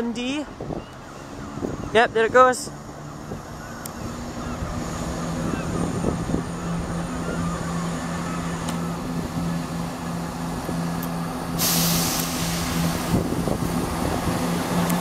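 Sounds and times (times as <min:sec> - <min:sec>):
train diesel engines humming: 0:00.0 - 0:15.0
loud air hiss: 0:11.5 - 0:13.4.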